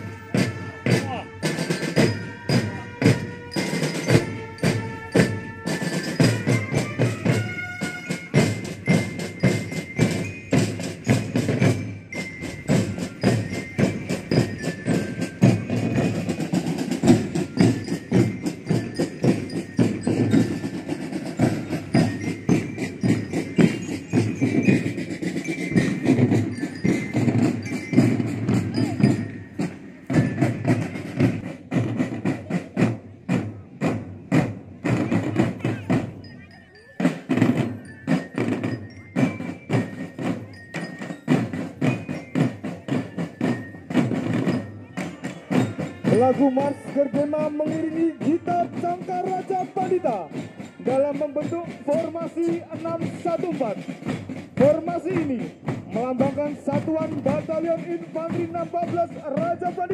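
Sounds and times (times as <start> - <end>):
trumpet melody: 0.0 - 8.8, 45.7 - 49.4
bell lyres: 0.0 - 59.9
snare drums: 0.0 - 59.9
tenor drums: 0.0 - 59.9.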